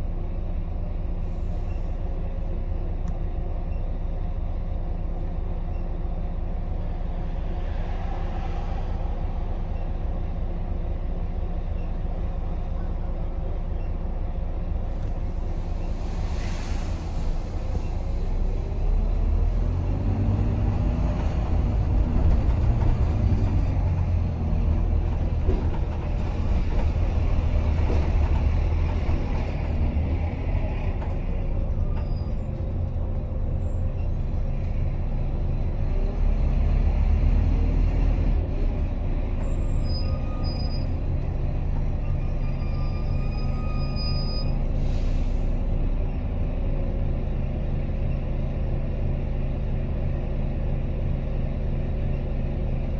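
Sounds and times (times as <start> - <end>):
bus diesel engine running: 0.0 - 52.9
air brake hiss: 44.8 - 45.6.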